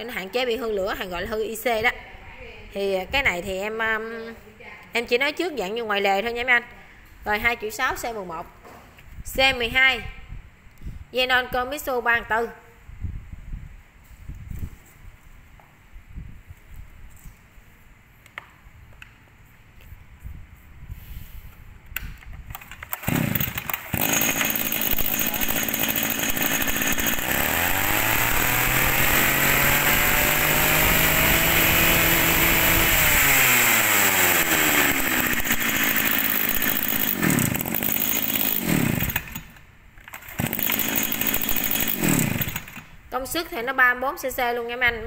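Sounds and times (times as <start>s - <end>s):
brush cutter engine revving: 22.8s - 39.6s, 40.2s - 42.9s.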